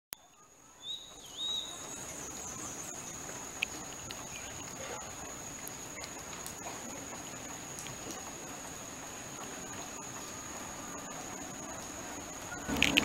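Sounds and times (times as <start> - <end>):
rural outdoor background noise: 0.1 - 13.0
high-pitched insect trill: 0.2 - 13.0
bird whistle: 0.8 - 2.0.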